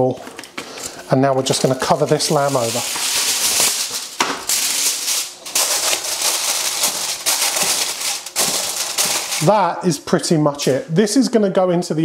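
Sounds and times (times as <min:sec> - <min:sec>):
aluminium foil crinkling: 0:01.4 - 0:09.7.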